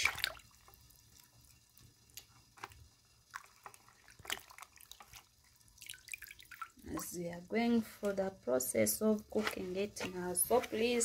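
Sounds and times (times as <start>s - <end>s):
water splashing and dripping: 0.0s - 1.5s, 2.1s - 7.2s.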